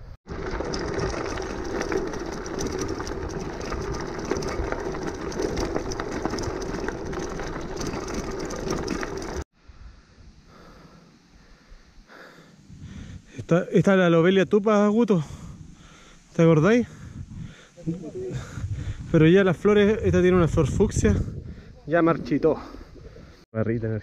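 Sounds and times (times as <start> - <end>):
bike rattling with small clicks: 0.3 - 9.4
tyres crunching on gravel: 0.3 - 9.5.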